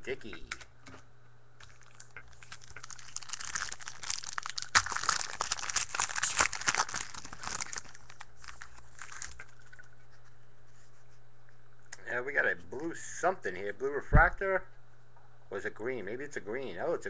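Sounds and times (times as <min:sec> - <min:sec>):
foil wrapper tearing and crinkling: 0:01.6 - 0:09.8.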